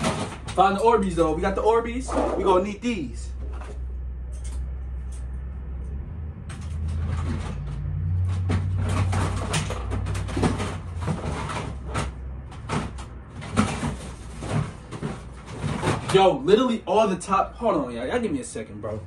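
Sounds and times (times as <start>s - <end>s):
objects knocking and clattering: 0.0s - 1.0s, 3.3s - 5.4s, 6.4s - 16.4s
steady low hum: 1.2s - 15.8s.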